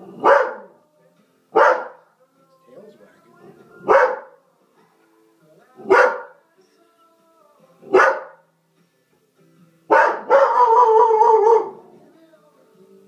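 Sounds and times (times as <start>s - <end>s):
dog barking: 0.0s - 0.8s, 1.6s - 2.1s, 3.8s - 4.4s, 5.8s - 6.4s, 7.9s - 8.4s, 9.9s - 11.8s
faint music: 0.0s - 13.0s
dog howling: 10.1s - 11.8s.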